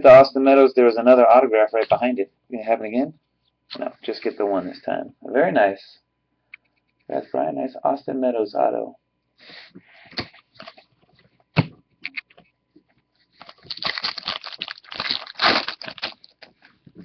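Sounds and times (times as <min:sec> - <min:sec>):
foil wrapper crinkling: 0:13.4 - 0:16.8.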